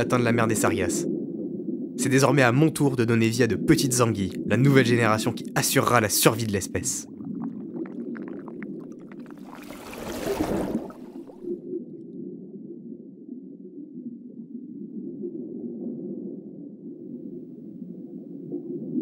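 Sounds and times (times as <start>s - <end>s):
low underwater rumble: 0.0s - 5.6s, 7.0s - 19.0s.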